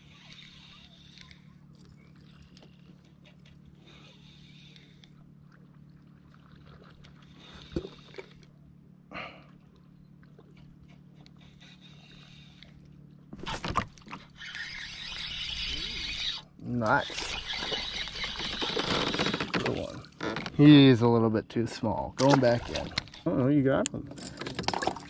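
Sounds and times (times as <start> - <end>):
spinning reel cranking: 14.3 - 19.6.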